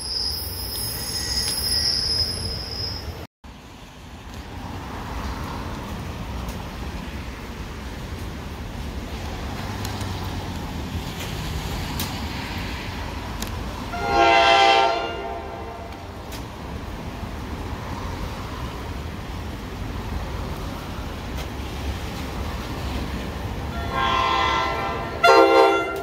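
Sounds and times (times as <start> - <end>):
low train rumble: 0.0 - 26.0
electric train horn blast: 13.9 - 16.2, 23.7 - 26.0.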